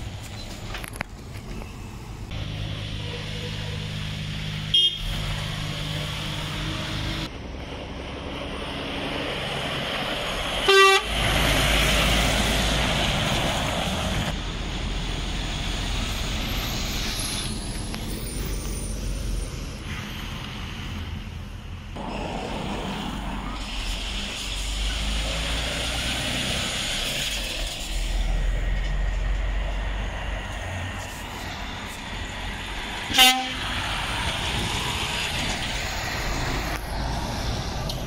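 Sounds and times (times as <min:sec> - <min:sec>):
diesel lorries passing: 0:00.0 - 0:38.0
engine and tyre rush: 0:00.0 - 0:38.0
horn toots: 0:04.7 - 0:05.2, 0:10.6 - 0:11.3, 0:33.1 - 0:33.7.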